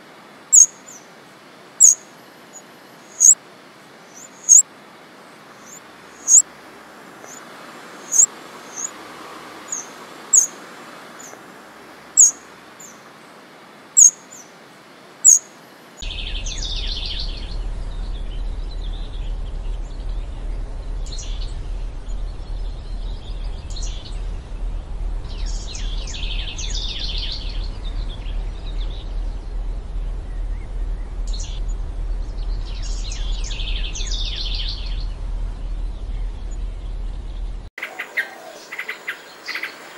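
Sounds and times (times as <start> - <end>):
bird singing rapid high notes: 0.5 - 1.0, 1.8 - 2.0, 3.1 - 3.4, 4.1 - 4.6, 5.6 - 6.4, 8.0 - 8.9, 9.7 - 10.5, 12.2 - 12.4, 14.0 - 14.4, 15.2 - 15.4, 16.0 - 24.3
steady low hum: 16.0 - 37.7.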